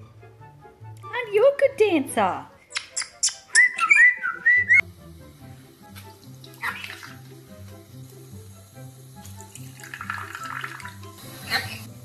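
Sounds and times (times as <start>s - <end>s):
parrot whistling: 3.0s - 4.8s
running tap water: 4.8s - 12.0s.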